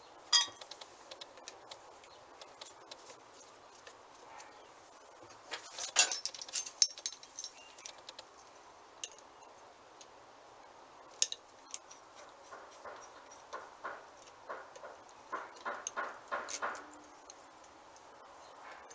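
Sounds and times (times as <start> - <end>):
hand tools clinking on metal: 0.3 - 0.7, 5.5 - 8.0, 11.2 - 14.0.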